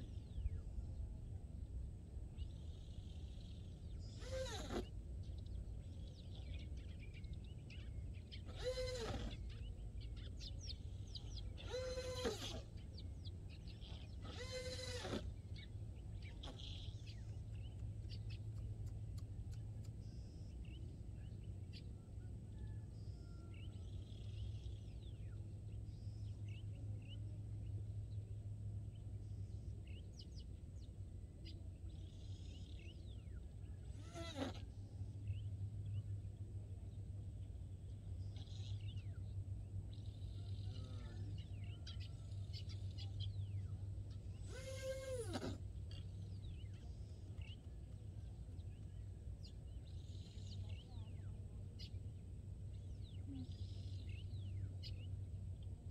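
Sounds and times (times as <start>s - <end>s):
animal calling short cries: 8.5s - 9.4s, 14.2s - 15.2s, 34.0s - 34.6s, 44.4s - 45.6s.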